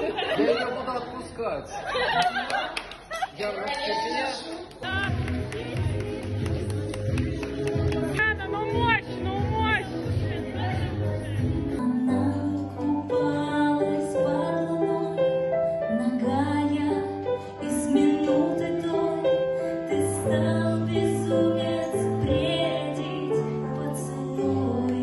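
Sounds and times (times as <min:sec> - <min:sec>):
digital piano chords: 0:05.1 - 0:25.0
woman singing into a microphone: 0:11.6 - 0:25.0.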